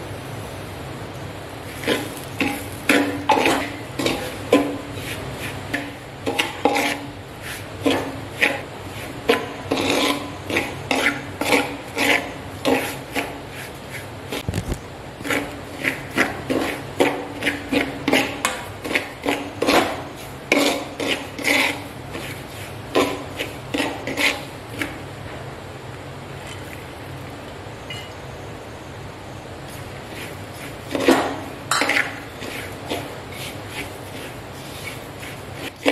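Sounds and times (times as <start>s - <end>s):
faint steady hum: 0.0s - 35.9s
metal spoon scraping a pot: 1.8s - 14.4s, 15.2s - 25.0s, 30.1s - 35.9s.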